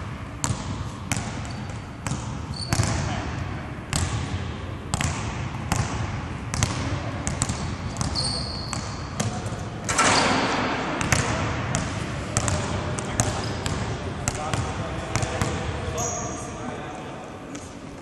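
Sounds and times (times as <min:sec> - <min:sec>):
basketballs bouncing on hardwood: 0:00.4 - 0:03.1, 0:03.9 - 0:09.4, 0:11.0 - 0:15.7
sneaker squeaks: 0:00.4 - 0:03.2, 0:07.4 - 0:10.7, 0:11.8 - 0:13.9, 0:15.8 - 0:16.7.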